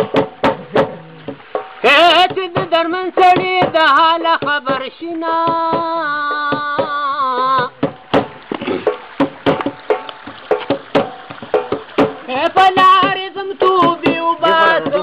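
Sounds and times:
man singing unaccompanied: 0.0s - 8.9s, 12.2s - 15.0s
rhythmic taps or claps: 0.0s - 15.0s.

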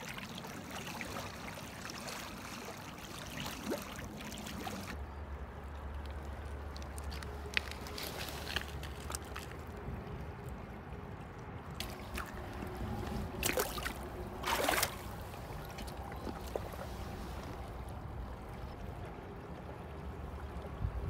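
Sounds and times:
shallow river rushing: 0.0s - 5.0s, 11.3s - 21.0s
water splashing: 0.0s - 5.0s, 11.7s - 18.2s.

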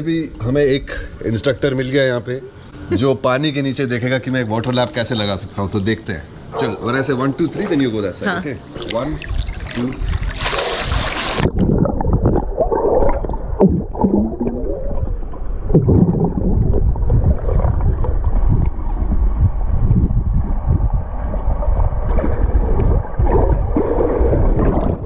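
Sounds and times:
pool water splashing: 6.6s - 19.1s
low underwater rush: 8.7s - 25.0s
underwater bubbles gurgling: 8.7s - 25.0s.

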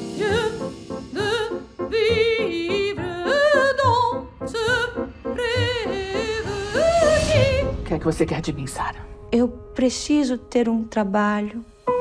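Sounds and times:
woman singing operatically: 0.0s - 7.8s.

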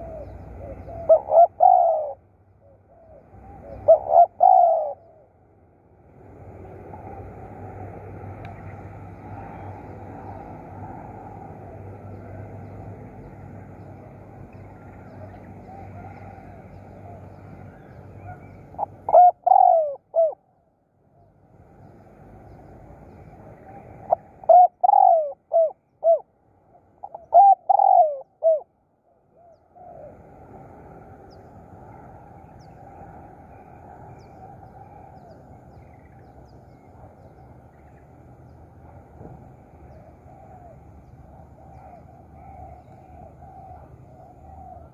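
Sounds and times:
dove cooing: 0.0s - 5.3s, 14.6s - 20.5s, 23.4s - 26.3s, 27.0s - 28.7s, 39.6s - 44.9s
low background noise: 0.0s - 44.9s.

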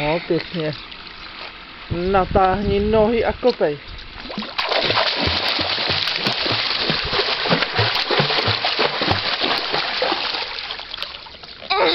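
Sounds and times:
water splashing from kicking legs: 4.1s - 11.7s.

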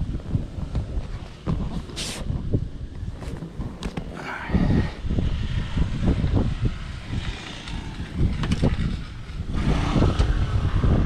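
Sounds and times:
wind on microphone: 0.0s - 11.0s
camera handling rumble: 0.3s - 4.2s, 7.1s - 9.3s.

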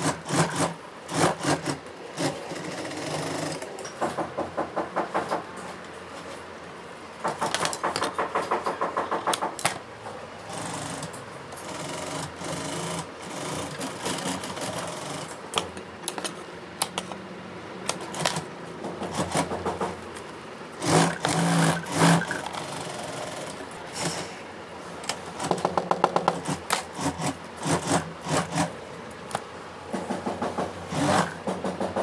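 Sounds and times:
sewing machine hum: 0.0s - 3.7s, 10.4s - 15.4s, 17.9s - 20.0s, 20.8s - 24.3s, 25.3s - 28.8s, 30.6s - 31.8s
sewing machine stitching: 0.0s - 3.7s, 10.5s - 15.4s, 20.8s - 24.2s, 26.2s - 28.7s, 30.9s - 31.8s.

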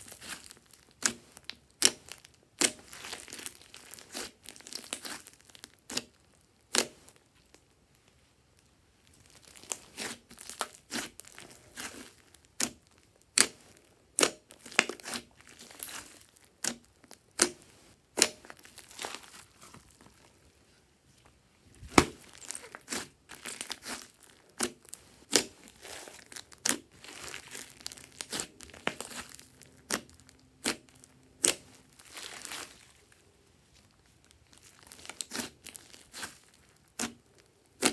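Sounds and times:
slime squishing and popping: 0.1s - 7.0s, 9.2s - 13.6s, 21.8s - 32.8s, 34.4s - 37.9s.

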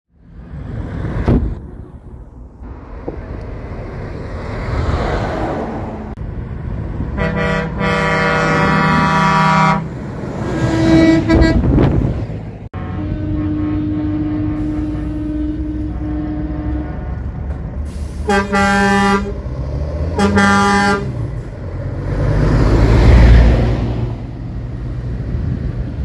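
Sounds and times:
truck horn blasting: 7.2s - 9.9s, 10.5s - 11.9s, 12.7s - 17.4s, 18.2s - 19.5s, 20.1s - 21.2s.

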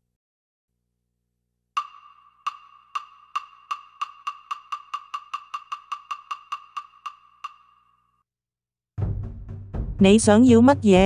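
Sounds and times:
wood block tick sound effect: 1.8s - 8.1s.

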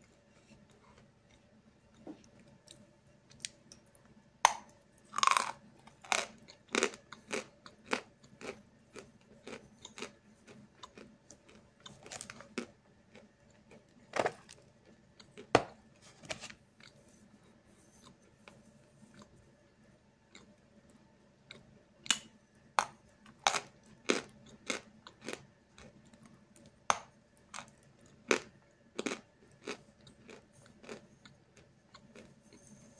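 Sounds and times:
chalk crunching while chewed: 5.1s - 15.5s, 23.2s - 32.7s.

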